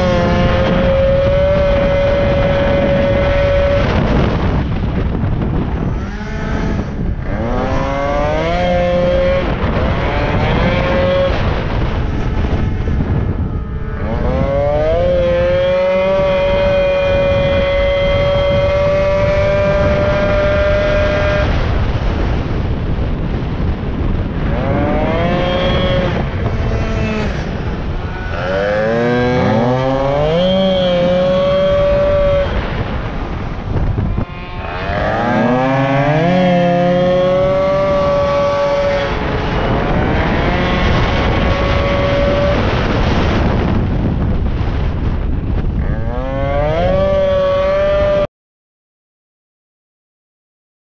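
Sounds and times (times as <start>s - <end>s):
moped engine at high revs: 0.0s - 48.3s.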